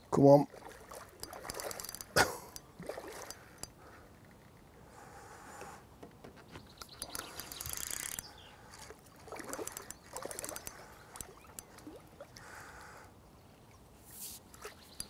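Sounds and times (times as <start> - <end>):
fish splashing water: 0.5 - 3.6, 8.7 - 12.5
faint bird calls: 6.5 - 13.8
small clicks: 6.8 - 11.7.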